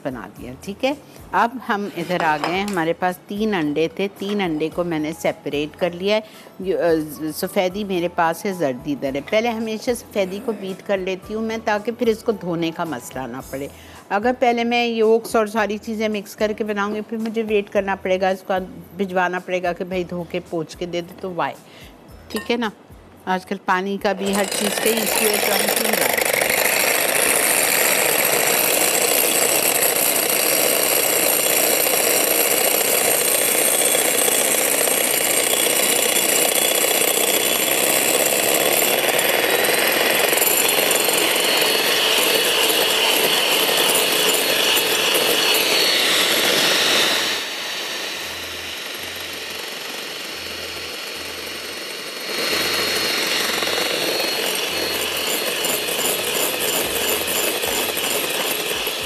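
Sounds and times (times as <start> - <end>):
electric mixer whipping: 1.5 - 6.2, 24.2 - 59.0.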